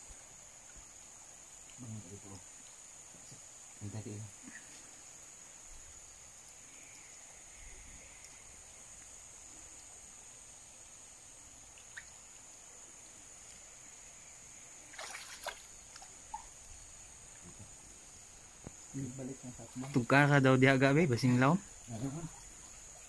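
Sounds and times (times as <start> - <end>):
high-pitched insect drone: 12.5 - 23.0
water splash: 14.9 - 16.5
water sloshing: 14.9 - 16.6.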